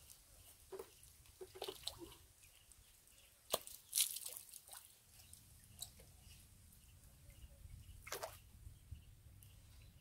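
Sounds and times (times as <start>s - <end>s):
water dripping: 3.4s - 6.1s.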